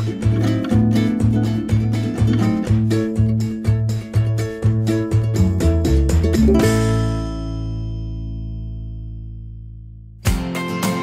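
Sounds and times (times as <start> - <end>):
bass line: 0.0 - 10.5
plucked guitar: 0.0 - 11.0.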